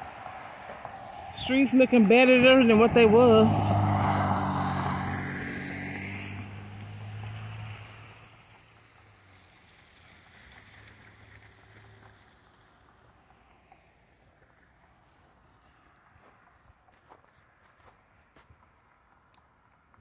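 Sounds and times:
tyres hissing on wet road: 0:00.0 - 0:14.5
faint street noise: 0:00.0 - 0:20.0
low engine hum: 0:00.1 - 0:15.6.

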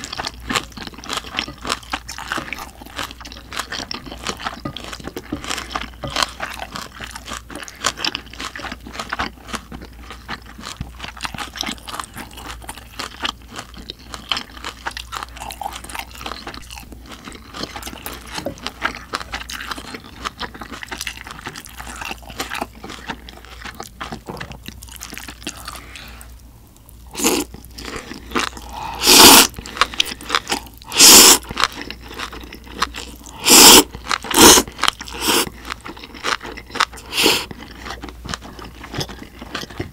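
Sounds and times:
person chewing: 0:00.0 - 0:39.9
slurping noodles: 0:27.2 - 0:31.5, 0:33.3 - 0:35.5, 0:37.0 - 0:37.5.

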